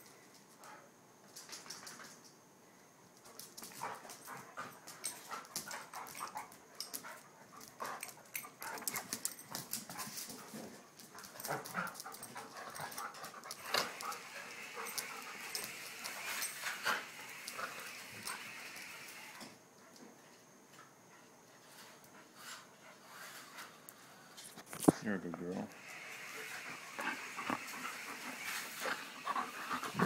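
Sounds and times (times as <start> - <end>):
dogs scuffling: 3.2 - 18.4
dogs breathing and vocalizing: 3.7 - 19.1, 25.7 - 30.0.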